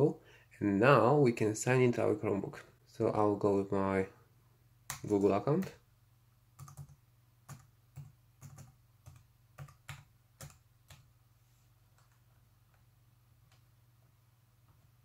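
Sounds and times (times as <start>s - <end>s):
laptop keyboard keystrokes: 6.6s - 11.1s.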